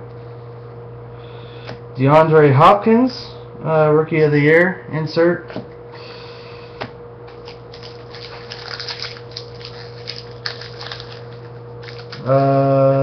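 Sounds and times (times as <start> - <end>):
steady electrical hum: 0.0 - 13.0
trading cards crackling: 7.3 - 12.5.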